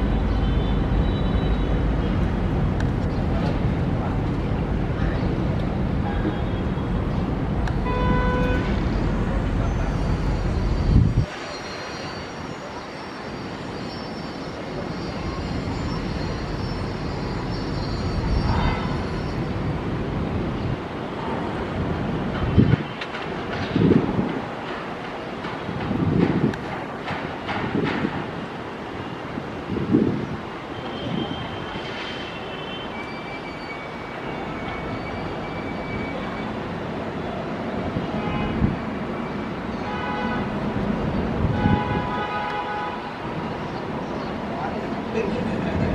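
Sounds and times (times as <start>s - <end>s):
jet engines low rumble: 0.0s - 11.3s.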